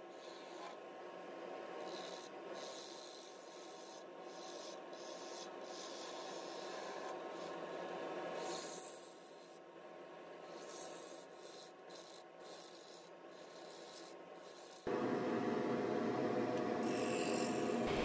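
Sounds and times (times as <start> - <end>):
steady running noise: 17.7 - 18.0.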